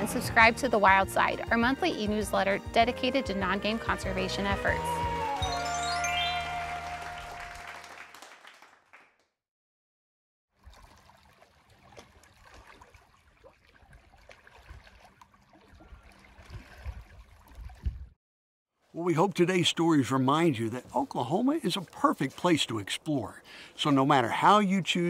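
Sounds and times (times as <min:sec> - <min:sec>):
sustained musical chord: 0:02.5 - 0:07.4
water lapping against rocks: 0:10.6 - 0:18.1.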